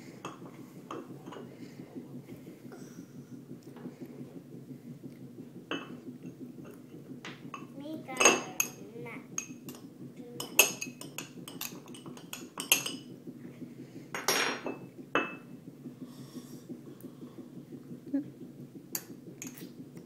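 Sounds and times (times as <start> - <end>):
spoons tapping against bowls: 6.7 - 8.8, 9.4 - 13.1, 18.9 - 19.7.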